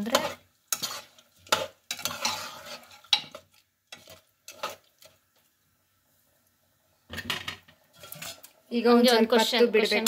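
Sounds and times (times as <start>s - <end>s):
metal spoon scraping a pot: 0.0s - 5.2s, 7.6s - 8.6s.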